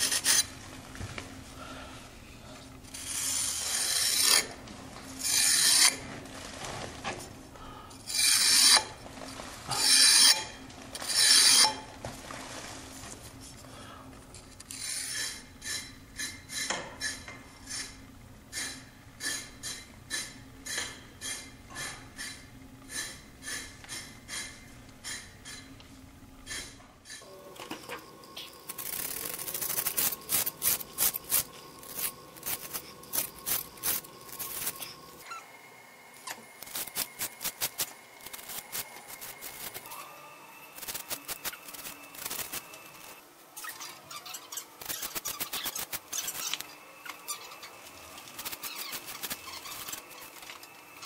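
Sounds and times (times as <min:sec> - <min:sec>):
hand tool scraping mortar: 0:02.9 - 0:04.6, 0:05.2 - 0:06.0, 0:08.1 - 0:09.0, 0:09.7 - 0:11.9, 0:28.7 - 0:35.0.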